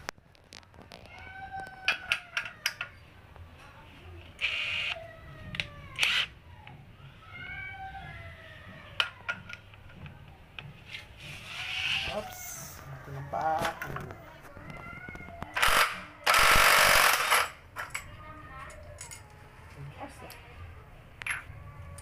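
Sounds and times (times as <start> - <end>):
impact wrench whirring: 15.6 - 17.5.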